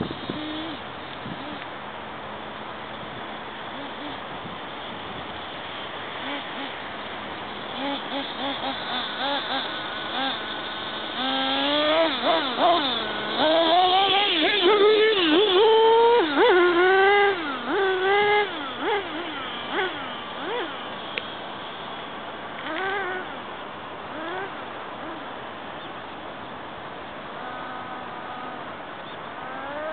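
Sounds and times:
rc plane electric motor whining: 0.0s - 1.7s, 3.7s - 23.5s, 24.1s - 25.3s, 27.4s - 28.8s, 29.4s - 29.9s.

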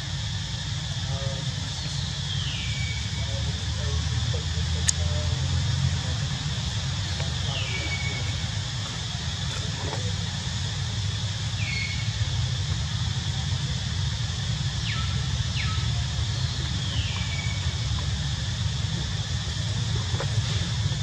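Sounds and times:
high hiss: 0.0s - 21.0s.

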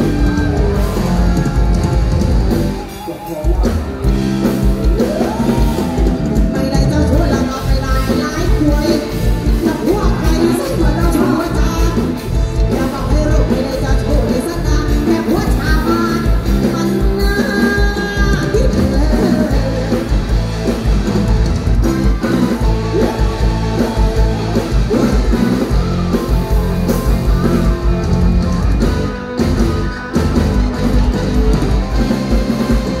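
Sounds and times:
drum beat: 0.0s - 14.2s, 17.2s - 33.0s
live band music: 0.0s - 33.0s
woman singing into microphone: 12.8s - 20.2s.

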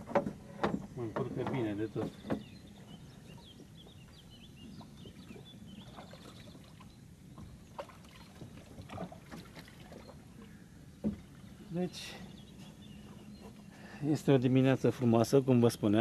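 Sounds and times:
low steady hum: 0.0s - 16.0s
faint bird chirps: 1.8s - 8.5s.

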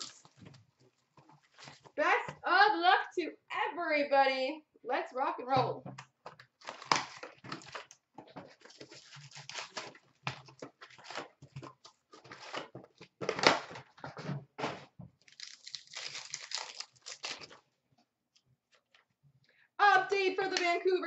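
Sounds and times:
foil packs rustling: 6.6s - 7.9s, 8.5s - 14.0s, 14.8s - 17.6s.

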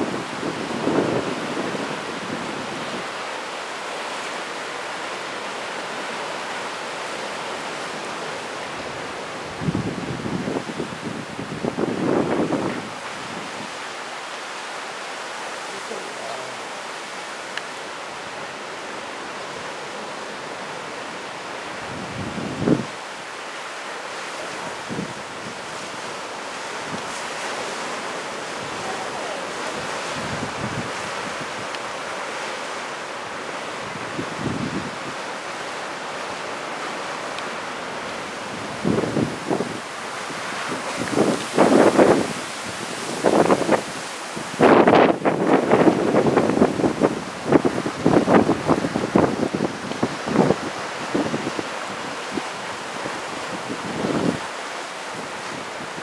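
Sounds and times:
wind buffeting microphone: 0.0s - 3.1s, 8.8s - 13.8s, 21.6s - 23.1s, 28.1s - 31.7s, 33.4s - 35.2s, 37.8s - 56.0s
ocean surf breaking: 0.0s - 56.0s.

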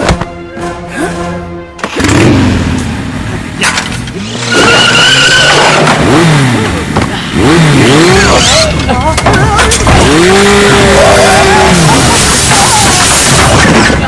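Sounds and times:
quad bike engine revving: 1.9s - 2.8s, 4.0s - 14.0s.

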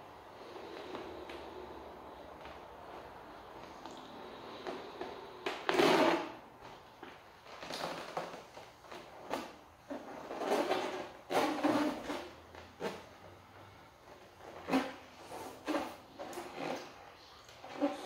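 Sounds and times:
breathy blows into balloon: 0.1s - 6.6s
rubbery balloon squeaks: 5.5s - 6.4s, 7.6s - 13.3s, 14.1s - 18.0s.

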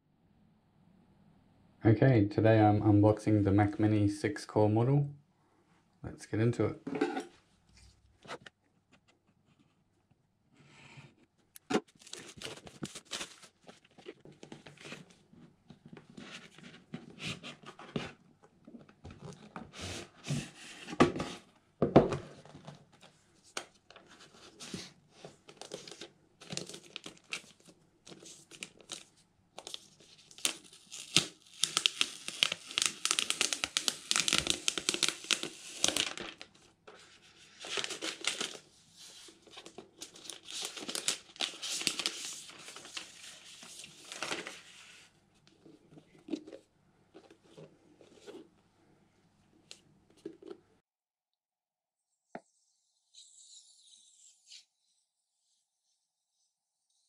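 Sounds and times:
box being handled and opened: 11.6s - 23.2s, 45.5s - 48.5s
plastic sleeve crinkling: 11.8s - 14.8s, 25.6s - 36.6s, 37.6s - 45.0s.

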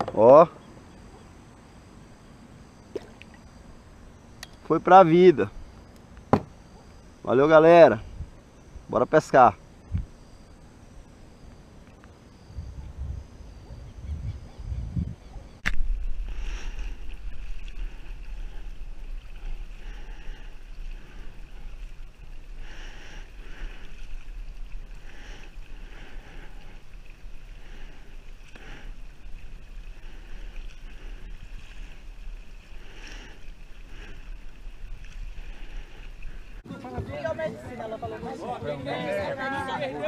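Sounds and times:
kayak paddle splashing in water: 2.8s - 3.5s, 15.6s - 36.6s.

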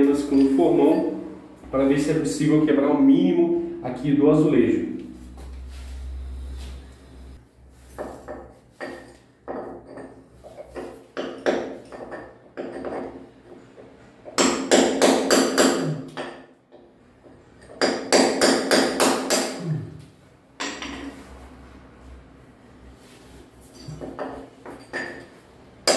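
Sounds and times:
hammer striking chisel: 8.0s - 13.2s, 14.3s - 16.9s, 17.6s - 19.6s.

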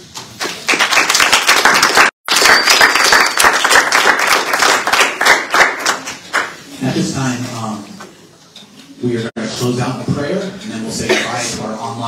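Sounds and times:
crowd applauding: 0.4s - 6.7s.

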